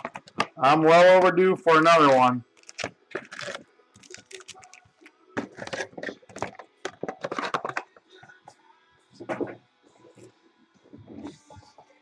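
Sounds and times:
card packaging torn open: 2.6s - 4.9s.

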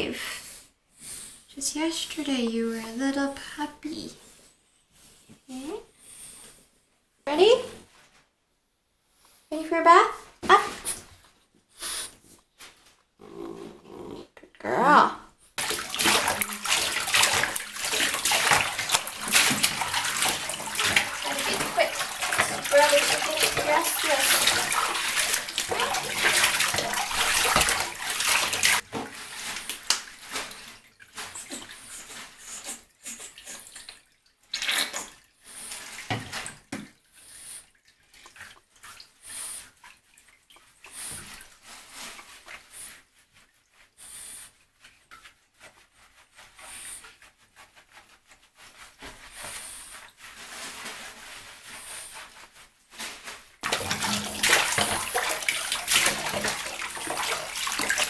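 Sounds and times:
water pouring in a bathtub: 15.5s - 58.0s
scrubbing and rubbing: 15.6s - 58.0s.

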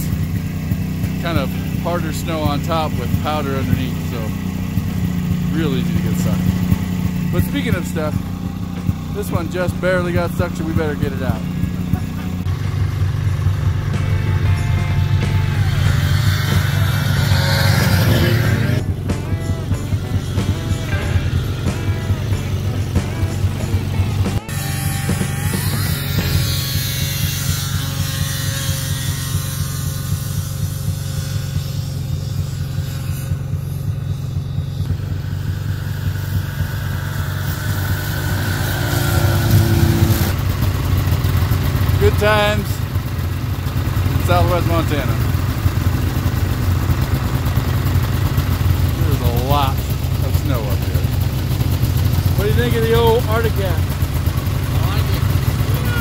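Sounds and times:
snowmobile engine running: 0.0s - 56.0s
background music: 0.8s - 26.9s.

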